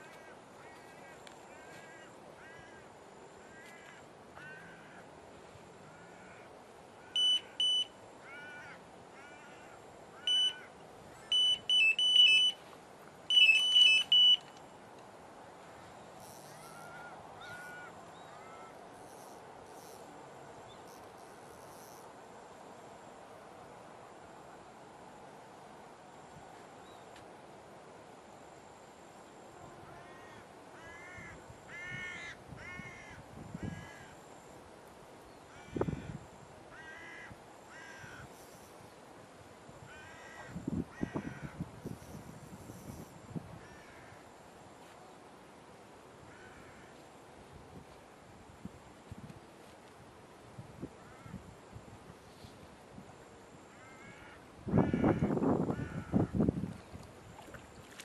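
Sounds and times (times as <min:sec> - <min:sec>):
crow cawing: 0:00.1 - 0:02.9, 0:03.5 - 0:05.1, 0:05.9 - 0:07.2, 0:08.2 - 0:10.8, 0:16.5 - 0:18.8, 0:30.0 - 0:34.2, 0:35.5 - 0:38.3, 0:39.9 - 0:41.6, 0:43.6 - 0:44.2, 0:46.3 - 0:47.0, 0:51.0 - 0:51.4, 0:53.7 - 0:56.4
electronic bite alarm beeping: 0:07.2 - 0:07.9, 0:10.3 - 0:10.6, 0:11.3 - 0:12.6, 0:13.3 - 0:14.6.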